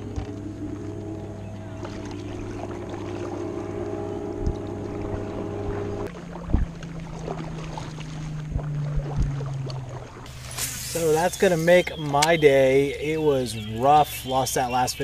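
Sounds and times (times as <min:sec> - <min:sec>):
steady hum: 0:00.0 - 0:13.2
kayak paddle strokes: 0:04.4 - 0:12.4.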